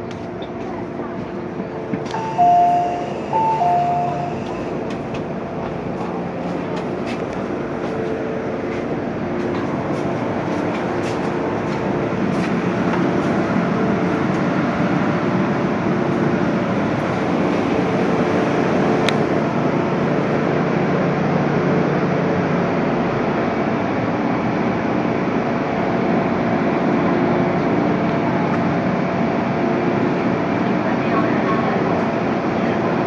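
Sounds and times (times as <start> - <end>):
metro train rumble and hiss: 0.0 - 33.0
two-tone door chime: 2.1 - 4.6.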